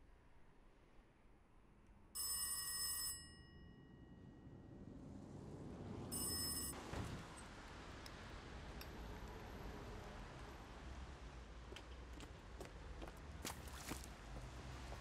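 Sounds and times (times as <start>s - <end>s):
bell ringing: 6.1s - 6.8s.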